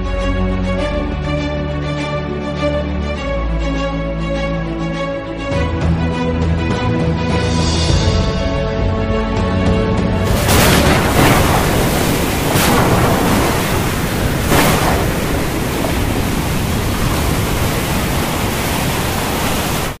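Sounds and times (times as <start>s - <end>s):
music: 0.0s - 11.5s
loud steady rushing noise: 10.2s - 20.0s.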